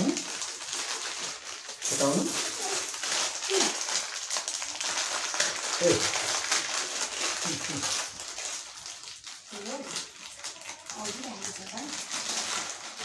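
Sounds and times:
food sizzling in a pan: 0:00.0 - 0:06.1.

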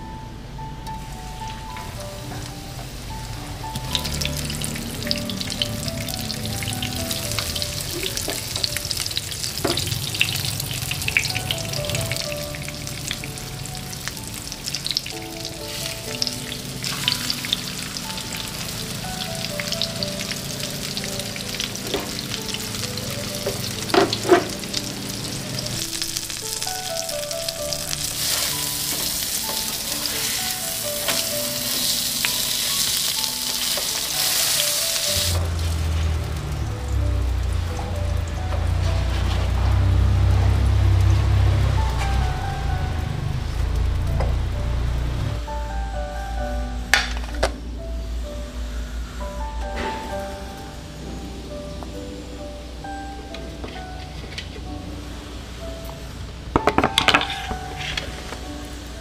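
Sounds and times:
fish sizzling in hot oil: 0:01.0 - 0:45.0.

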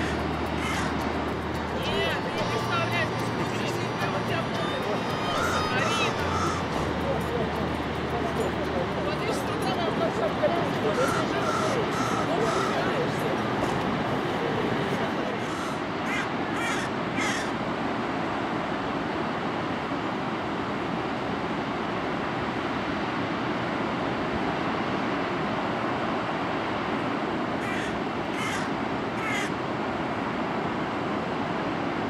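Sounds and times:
bird calling: 0:00.0 - 0:01.0, 0:04.6 - 0:07.1, 0:10.9 - 0:13.1, 0:15.4 - 0:17.6, 0:27.6 - 0:29.6
waterfall rushing: 0:00.0 - 0:20.8.

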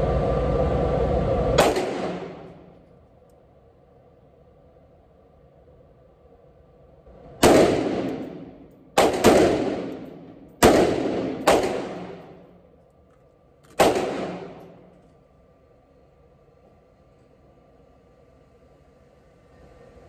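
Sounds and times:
rifle shots echoing indoors: 0:01.6 - 0:02.9, 0:07.1 - 0:12.8, 0:13.6 - 0:15.1.

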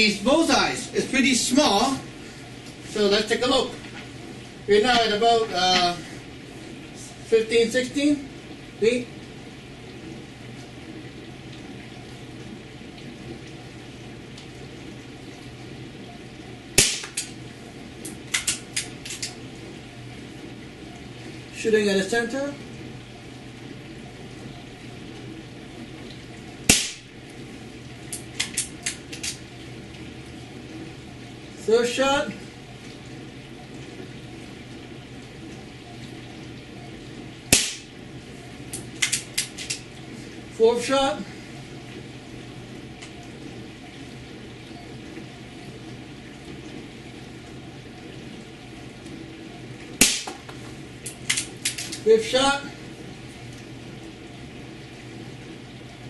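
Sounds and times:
air rifle shot crack: 0:16.8 - 0:17.2, 0:26.7 - 0:27.0, 0:37.6 - 0:37.9, 0:50.0 - 0:50.4.

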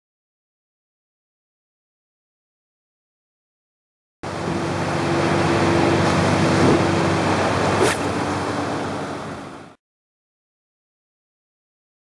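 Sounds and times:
rushing wind: 0:04.3 - 0:09.7
brief sharp sound: 0:07.8 - 0:08.2.

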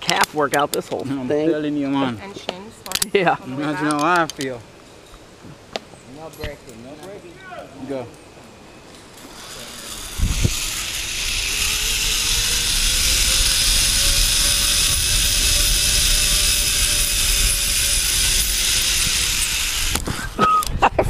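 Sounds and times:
zip-line pulleys whirring on cable: 0:09.1 - 0:20.4
wind rumble on microphone: 0:10.0 - 0:21.0.

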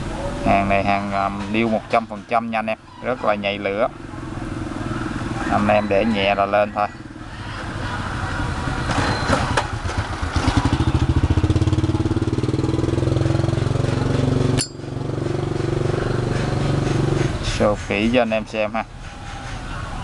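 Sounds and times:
vehicle engine running: 0:07.0 - 0:17.8.

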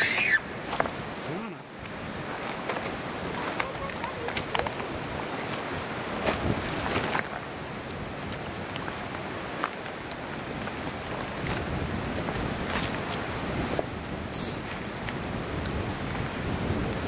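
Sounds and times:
river rushing: 0:00.0 - 0:17.0
wind on microphone: 0:00.0 - 0:17.0.

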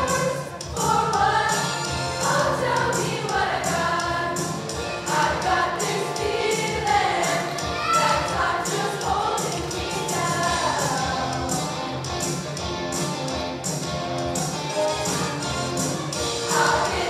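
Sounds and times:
choir singing in harmony: 0:00.0 - 0:11.6, 0:16.2 - 0:17.0.

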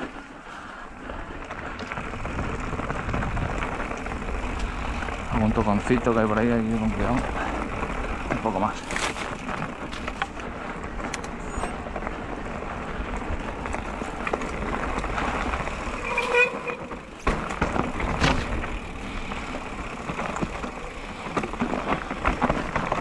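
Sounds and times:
bike rolling on dirt trail: 0:00.0 - 0:23.0
wheels knocking on stones: 0:01.6 - 0:23.0
bicycle brakes squealing: 0:15.8 - 0:18.1.

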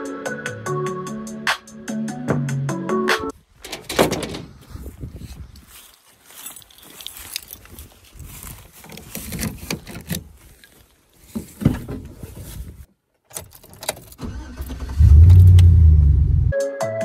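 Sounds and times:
car door thud: 0:03.6 - 0:04.6
engine starting and rumbling: 0:03.6 - 0:05.0, 0:11.9 - 0:16.5
rustling and knocks: 0:03.6 - 0:05.2, 0:06.3 - 0:12.9
keys jangling: 0:06.3 - 0:08.0, 0:13.3 - 0:14.2.

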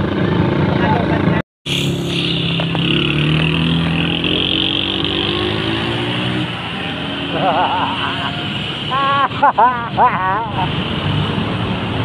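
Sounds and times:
vehicle engine accelerating: 0:00.0 - 0:09.2
road noise: 0:00.0 - 0:12.0.

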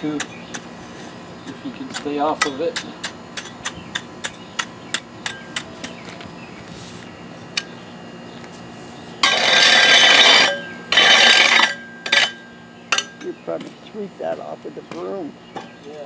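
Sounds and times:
steel scraper tapping blacktop: 0:00.0 - 0:06.0, 0:09.2 - 0:13.7.

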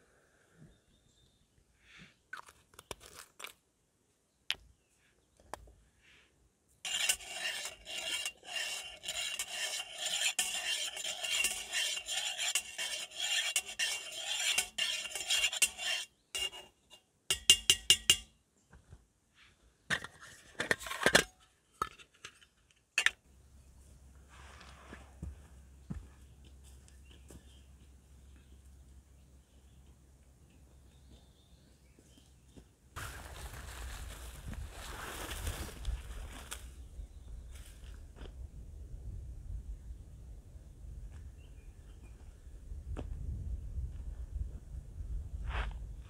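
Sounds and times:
metal scraping on cookware: 0:06.9 - 0:18.2.

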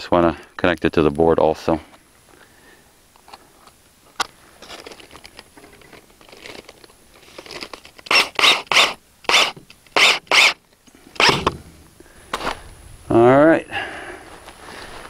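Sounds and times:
cordless drill driving screw: 0:07.4 - 0:10.6, 0:11.2 - 0:11.6.

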